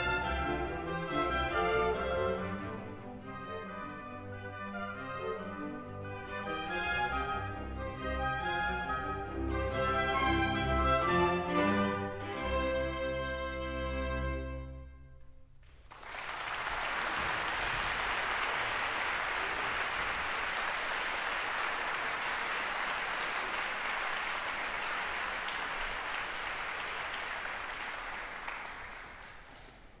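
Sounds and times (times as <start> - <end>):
audience applause: 15.6 - 30.0.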